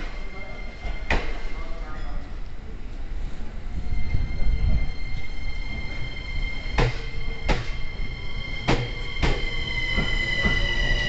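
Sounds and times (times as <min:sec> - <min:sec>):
electric train rolling: 0:03.4 - 0:11.0.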